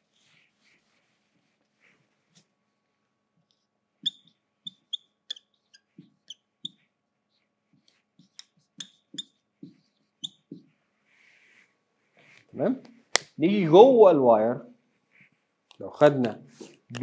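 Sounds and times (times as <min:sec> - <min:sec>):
marker squeaking on whiteboard: 0:03.5 - 0:10.8.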